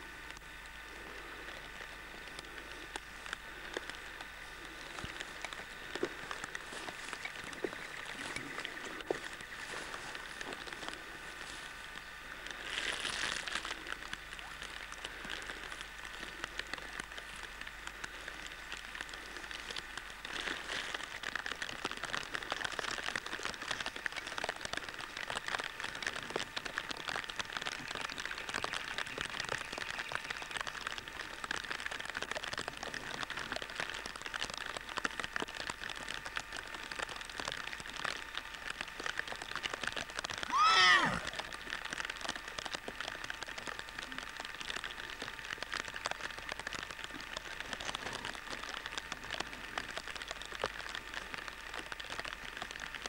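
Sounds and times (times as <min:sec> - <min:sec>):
steady rain falling: 0:00.0 - 0:53.0.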